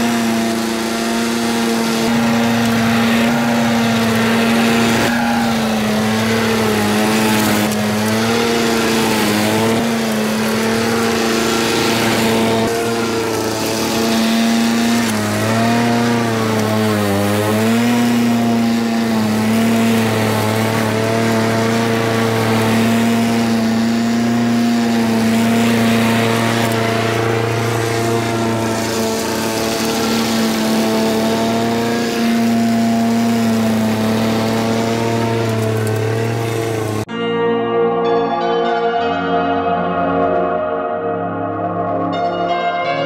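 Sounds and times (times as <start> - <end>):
lawn mower engine running: 0.0 - 37.2.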